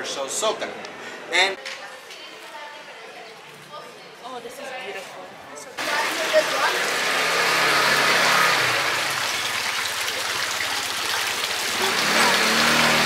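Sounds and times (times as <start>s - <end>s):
fountain water splashing: 5.8s - 13.0s.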